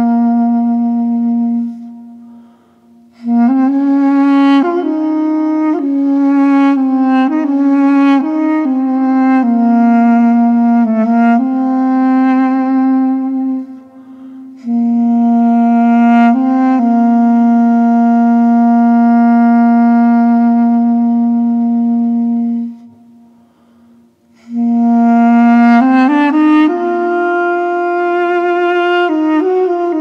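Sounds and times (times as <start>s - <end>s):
woodwind playing slow melody: 0.0s - 30.0s.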